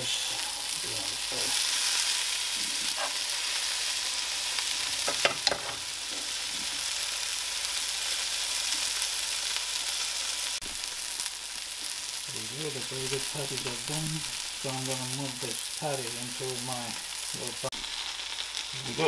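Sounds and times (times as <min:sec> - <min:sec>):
burger patties sizzling in a pan: 0:00.0 - 0:19.0.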